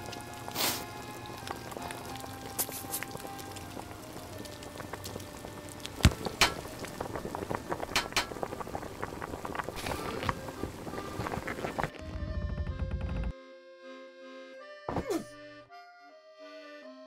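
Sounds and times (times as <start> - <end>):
food sizzling in a pan: 0.0 - 11.9.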